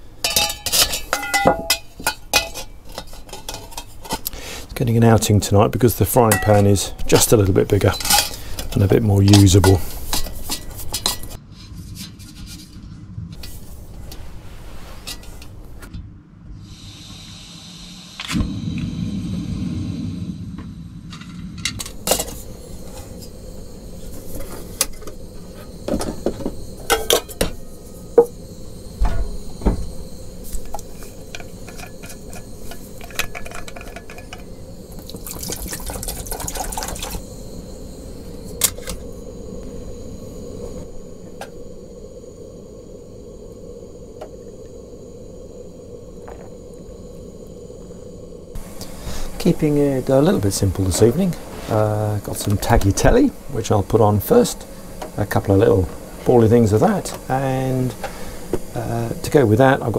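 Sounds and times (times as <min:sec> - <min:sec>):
metal pans clinking: 0:00.2 - 0:04.3, 0:06.3 - 0:07.3, 0:07.9 - 0:11.4, 0:25.9 - 0:27.6
liquid pouring into pot: 0:34.9 - 0:37.2.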